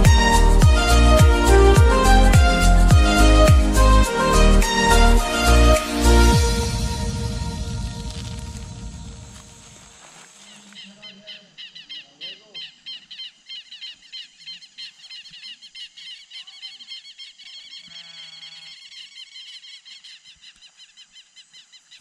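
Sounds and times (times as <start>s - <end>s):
rapid high animal chirps: 10.4s - 22.0s.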